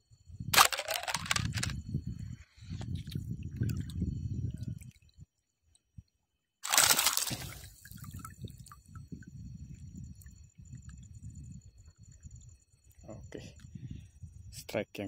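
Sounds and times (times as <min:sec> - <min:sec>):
water sloshing underwater: 0:02.6 - 0:05.2, 0:06.6 - 0:11.6
rush of water and bubbles: 0:06.6 - 0:08.5.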